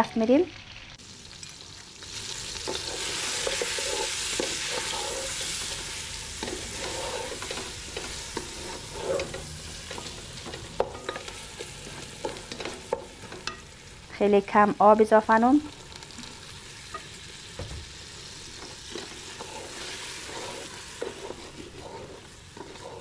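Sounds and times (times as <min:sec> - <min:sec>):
chicken sizzling in oil: 0:00.2 - 0:23.0
wooden spatula scraping pot: 0:02.6 - 0:13.6, 0:18.6 - 0:23.0.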